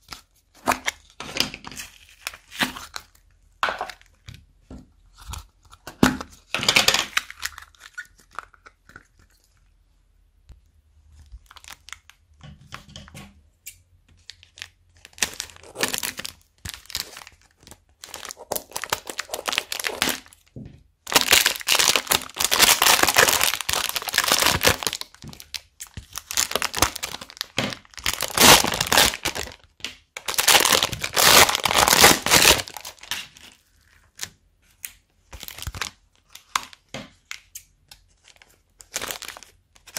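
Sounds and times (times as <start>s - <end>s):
foam beads crunching and crackling: 15.0s - 20.4s, 21.1s - 29.6s, 30.2s - 33.4s.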